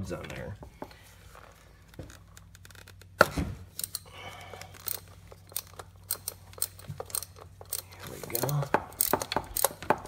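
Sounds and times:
ratchet clicking: 0:03.7 - 0:04.1, 0:04.7 - 0:10.0.

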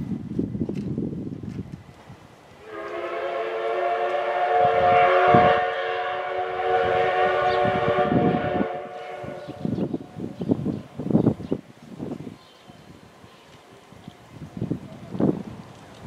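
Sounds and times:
steam whistle blast: 0:02.6 - 0:09.8.

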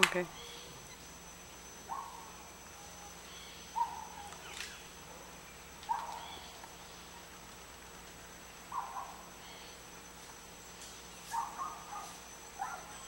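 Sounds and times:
bird calling: 0:00.0 - 0:01.1, 0:01.8 - 0:07.2, 0:08.6 - 0:09.9, 0:11.2 - 0:13.0
high-pitched background hum: 0:00.0 - 0:13.0.

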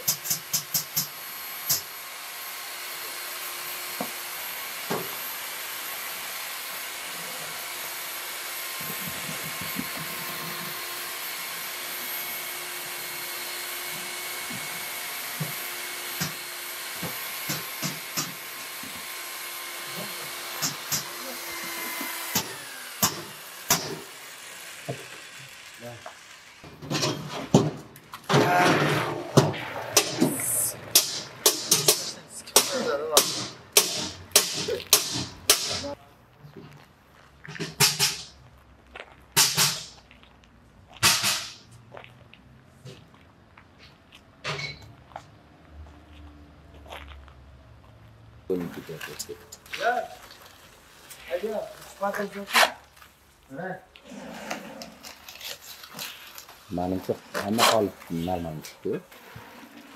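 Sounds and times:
concrete slurry pouring into mould: 0:50.1 - 0:52.1.

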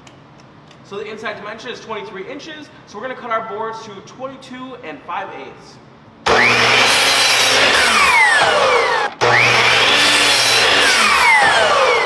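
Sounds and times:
miter saw cutting wood: 0:06.3 - 0:12.0.

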